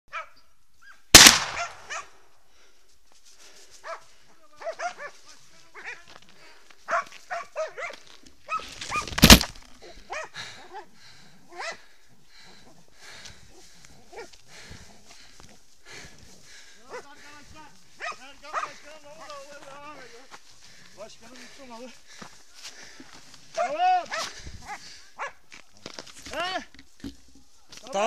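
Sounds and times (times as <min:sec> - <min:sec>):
hounds barking and baying: 0:00.1 - 0:02.2, 0:03.8 - 0:09.2, 0:09.8 - 0:21.0, 0:22.2 - 0:25.5
shotgun shots: 0:01.2 - 0:02.0.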